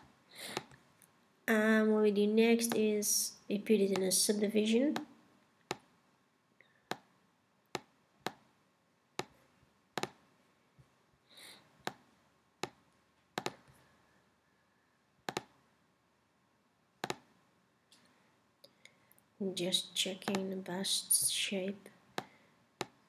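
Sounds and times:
computer mouse clicking: 0:15.3 - 0:15.5, 0:17.0 - 0:17.2.

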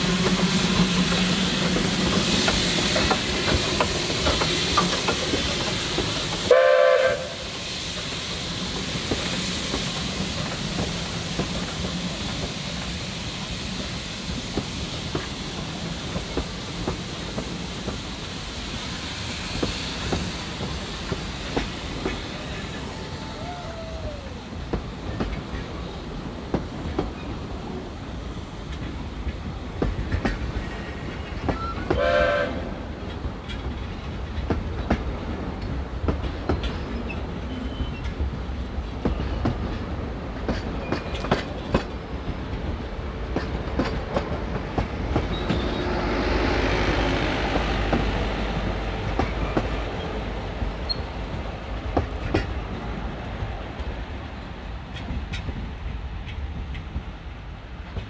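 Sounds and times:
wheels clicking over rail joints: 0:00.0 - 0:06.6, 0:33.0 - 0:45.8, 0:47.5 - 0:58.0
train coaches rumbling past: 0:00.0 - 0:58.0.

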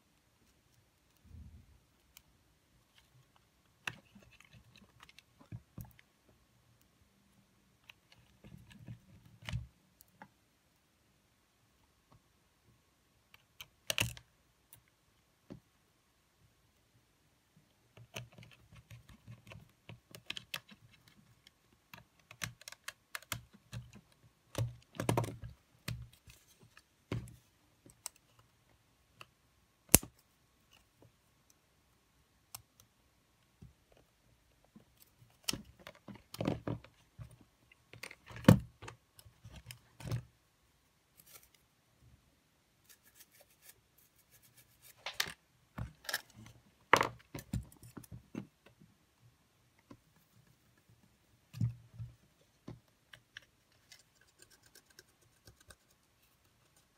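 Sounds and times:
small clicks and taps of parts: 0:13.2 - 0:15.7, 0:17.9 - 0:31.6.

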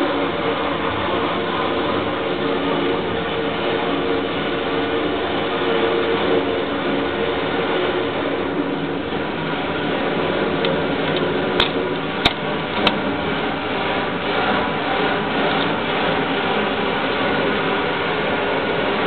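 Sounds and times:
machinery whirring and humming: 0:00.0 - 0:19.0.

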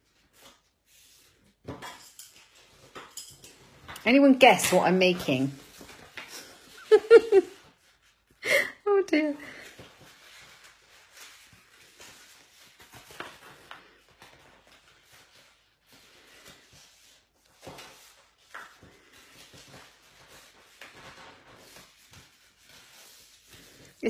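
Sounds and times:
cardstock rustling and crinkling: 0:00.0 - 0:08.3, 0:09.5 - 0:24.0
sharp paper crackles: 0:09.5 - 0:24.0.

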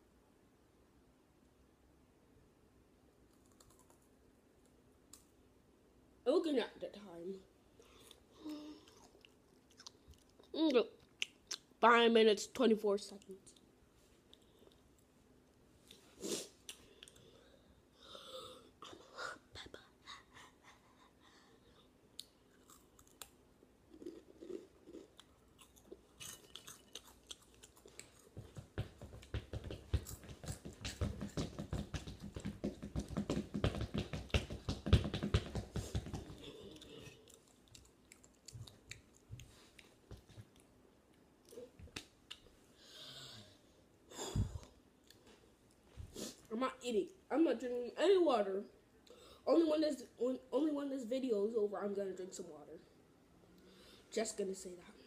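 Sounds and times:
crunchy snack chewing: 0:22.5 - 0:23.3, 0:23.9 - 0:28.4.

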